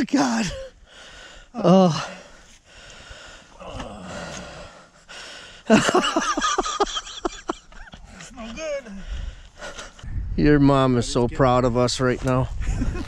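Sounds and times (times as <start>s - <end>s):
man gasping: 0.8s - 5.7s.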